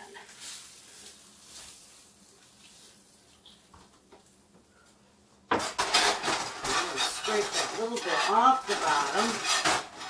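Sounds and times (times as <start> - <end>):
metal spatula scraping skillet: 5.6 - 10.0.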